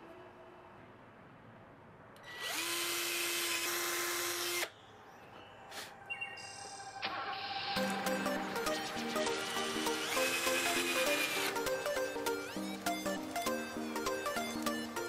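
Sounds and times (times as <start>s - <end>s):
power drill whining: 2.2s - 4.7s, 8.8s - 14.9s.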